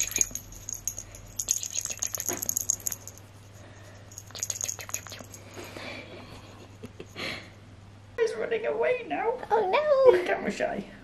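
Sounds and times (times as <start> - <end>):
toy rattling and jingling: 0.0 - 7.4.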